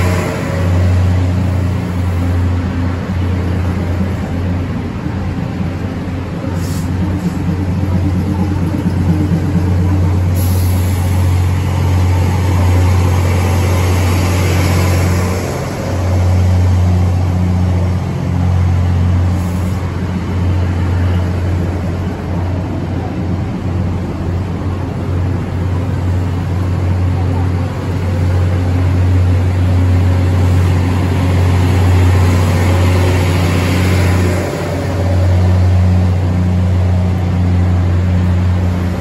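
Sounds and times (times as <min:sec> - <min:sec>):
train engines droning: 0:00.0 - 0:39.0
hiss from train wheels: 0:06.4 - 0:08.1, 0:10.1 - 0:16.5, 0:19.2 - 0:20.2.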